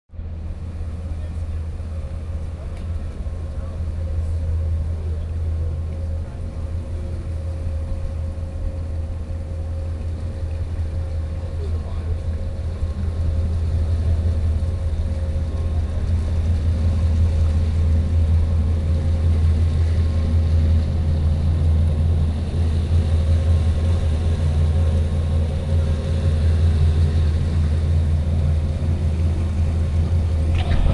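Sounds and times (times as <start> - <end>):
boat machinery rumbling: 0.1 - 30.9
faint constant hum: 0.1 - 30.9.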